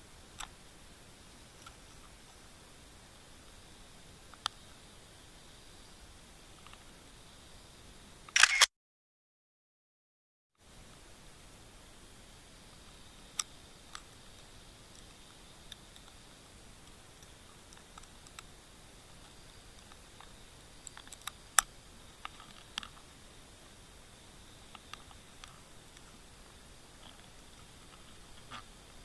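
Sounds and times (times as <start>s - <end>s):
faint underwater hiss: 10.6s - 29.0s.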